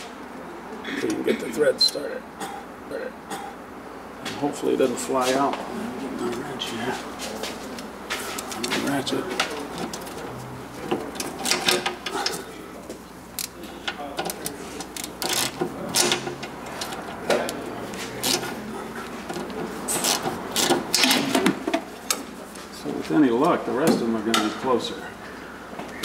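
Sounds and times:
hand ratchet clicking: 14.2 - 17.0, 18.2 - 18.5, 19.4 - 21.2.

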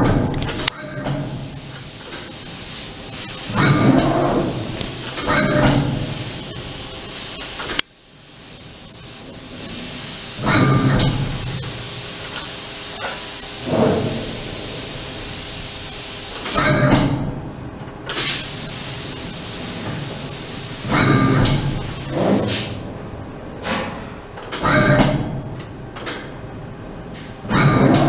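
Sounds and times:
steady hiss: 1.3 - 16.6, 18.1 - 22.8.

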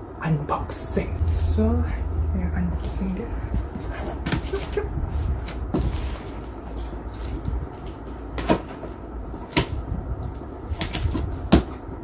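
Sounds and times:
cardboard rustling and scraping: 4.0 - 9.8.

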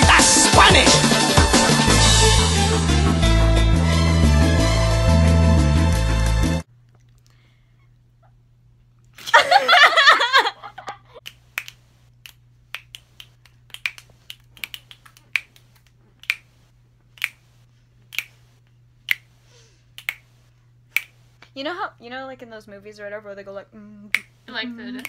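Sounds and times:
fingers snapping: 11.2 - 16.5, 17.1 - 17.5, 18.1 - 18.4, 19.0 - 19.4, 20.0 - 20.3, 20.9 - 21.5, 24.1 - 24.4.

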